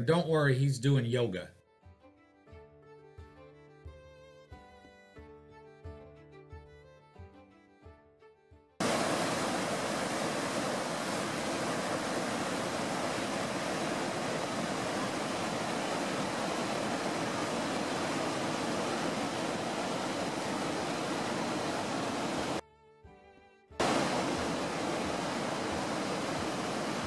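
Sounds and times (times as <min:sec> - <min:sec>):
roar of river rapids: 0:08.8 - 0:22.6, 0:23.8 - 0:27.0.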